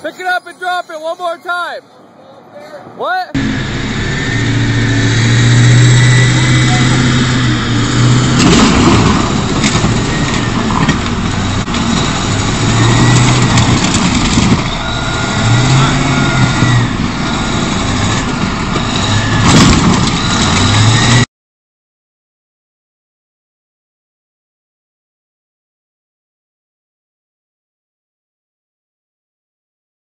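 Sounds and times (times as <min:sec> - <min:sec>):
diesel engine revving: 0:03.3 - 0:21.3
car being crushed: 0:08.4 - 0:16.9, 0:18.1 - 0:20.9.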